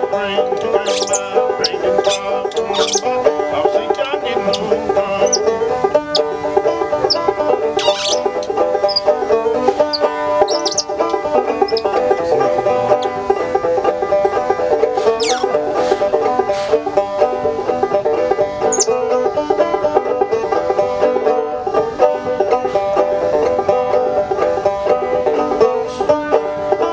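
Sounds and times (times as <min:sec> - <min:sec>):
banjo picking: 0:00.0 - 0:26.9
monkey squealing: 0:00.3 - 0:03.1, 0:03.8 - 0:05.5, 0:07.0 - 0:09.1, 0:09.8 - 0:12.0, 0:12.9 - 0:13.1, 0:15.1 - 0:15.5, 0:18.7 - 0:18.9.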